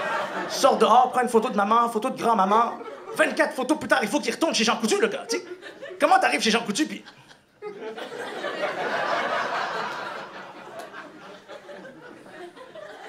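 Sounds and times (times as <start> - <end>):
audience laughing: 0.0 - 1.2, 2.4 - 3.7, 5.2 - 13.0.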